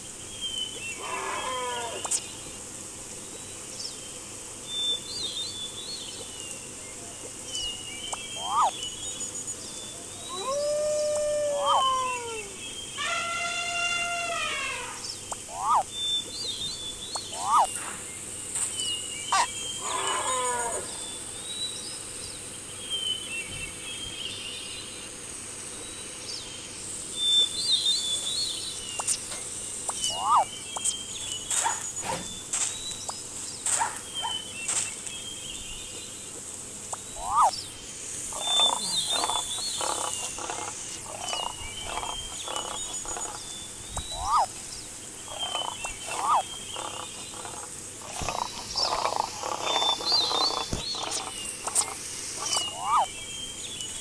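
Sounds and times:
birds chirping: 0.0 - 54.0
steady high hiss: 0.0 - 54.0
short calls: 8.3 - 8.8, 10.2 - 15.9, 17.2 - 17.8, 29.9 - 32.7, 37.0 - 37.6, 38.3 - 43.4, 44.0 - 44.6, 45.3 - 53.2.

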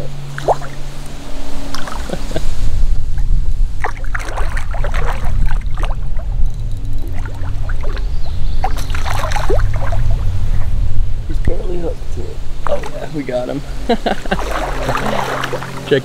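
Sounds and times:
low rumble: 0.0 - 16.0
fish splashing at surface: 3.8 - 6.3, 7.1 - 10.2, 14.4 - 15.9.

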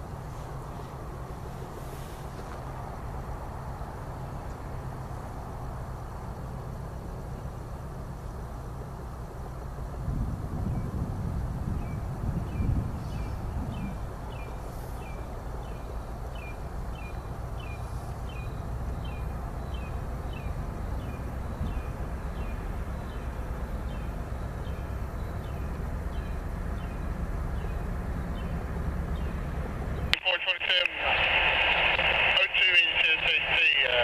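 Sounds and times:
diesel locomotive rumbling: 0.0 - 34.0
bird chirping: 11.8 - 30.1.

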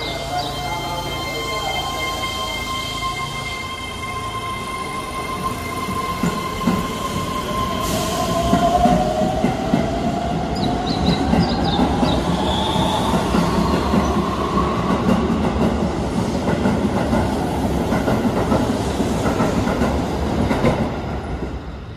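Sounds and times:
wheels clacking on rails: 5.9 - 21.6.

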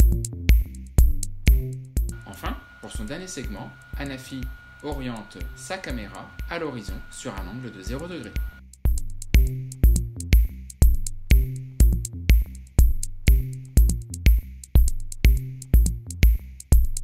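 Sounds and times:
kick drum: 0.0 - 2.2, 7.9 - 17.0
electronic music with drum-machine beat: 0.0 - 17.0
sustained low synth line: 2.1 - 8.6.

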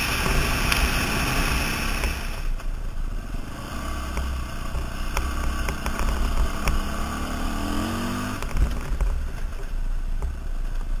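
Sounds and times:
sharp clicks and rattles: 4.1 - 6.8, 8.4 - 11.0.

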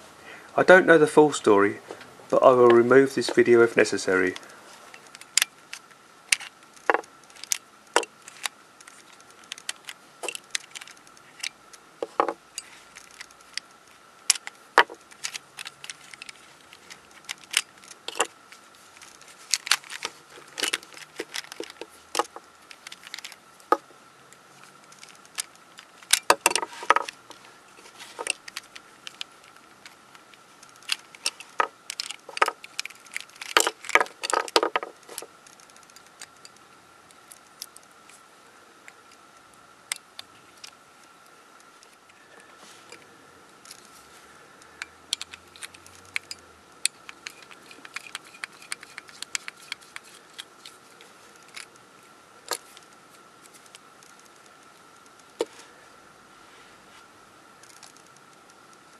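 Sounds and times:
plastic puzzle cube pieces clicking: 5.0 - 18.3, 18.9 - 23.8, 24.6 - 36.6, 44.8 - 50.8.

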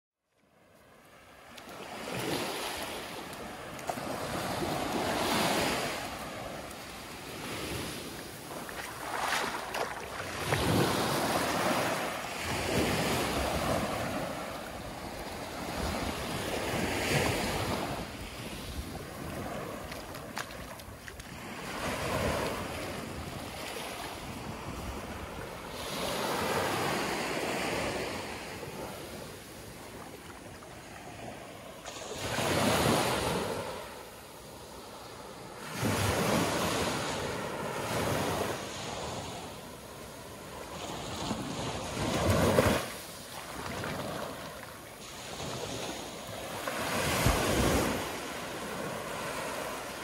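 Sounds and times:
waves breaking on sandy beach: 0.5 - 50.0.

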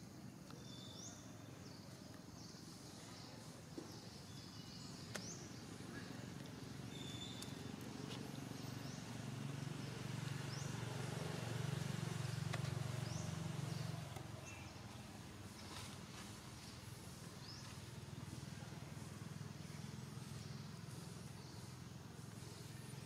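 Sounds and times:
passing vehicle engine hum: 7.6 - 14.4.

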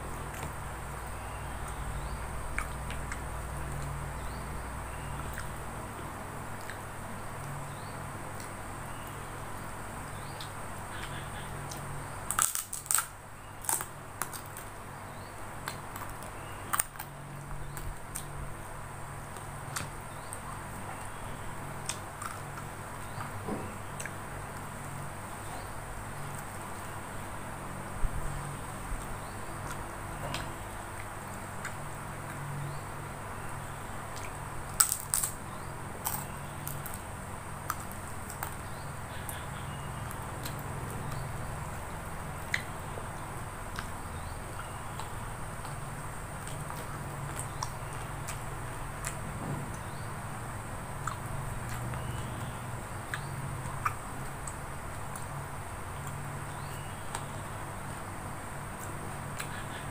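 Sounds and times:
steady low hum: 0.0 - 59.9
mouth and chewing clicks: 1.6 - 4.4, 5.2 - 5.6, 6.5 - 24.8, 28.7 - 32.8, 33.4 - 50.1, 50.9 - 59.9.

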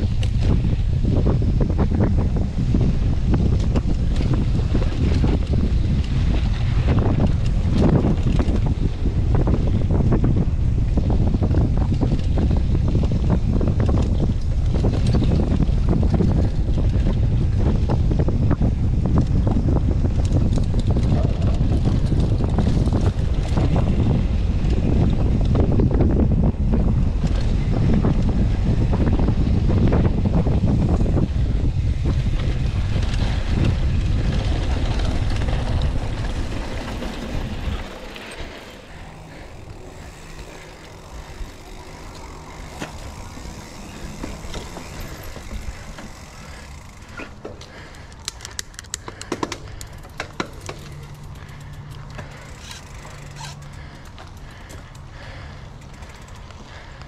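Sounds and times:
bike rattling over rough trail: 0.0 - 57.0
wind buffeting microphone: 0.0 - 57.0.

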